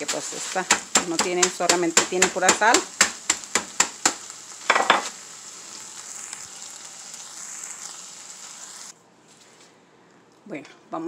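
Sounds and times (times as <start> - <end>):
rolling pin tapping on crackers: 0.0 - 4.9
faint hiss: 0.0 - 10.2.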